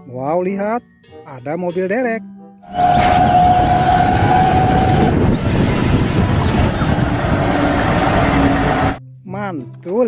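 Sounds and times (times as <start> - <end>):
heavy truck engine running: 2.8 - 9.0.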